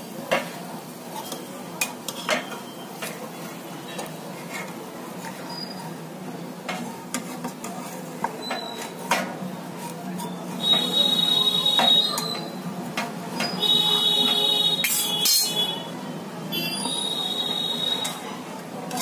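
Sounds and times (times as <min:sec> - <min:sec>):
high steady whistling tone: 0:10.2 - 0:12.6, 0:16.6 - 0:18.3
spatula tapping a pan: 0:10.6 - 0:11.0.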